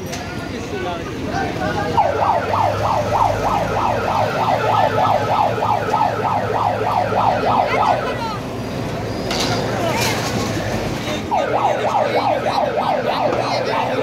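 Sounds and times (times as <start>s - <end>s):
electronic siren yelping: 2.0s - 8.4s, 11.3s - 14.0s.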